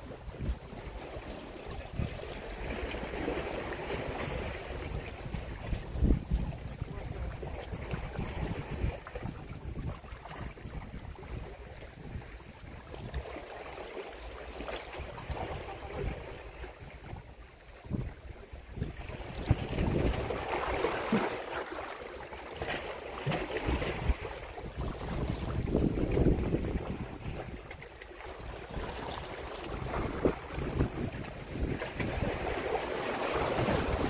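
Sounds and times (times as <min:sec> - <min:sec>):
wind buffeting microphone: 0:04.3 - 0:13.2, 0:15.0 - 0:21.0, 0:23.2 - 0:27.8, 0:28.4 - 0:34.0
waves washing against rocks: 0:18.7 - 0:34.0.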